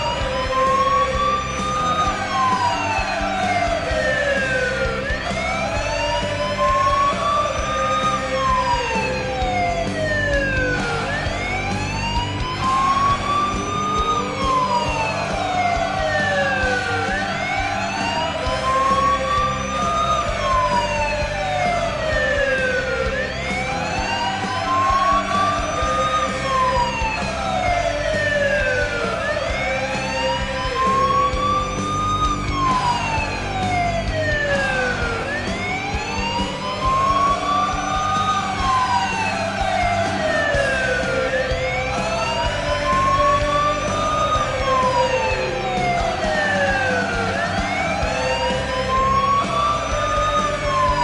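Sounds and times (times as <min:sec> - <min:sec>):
wailing siren: 0:00.0 - 0:51.0.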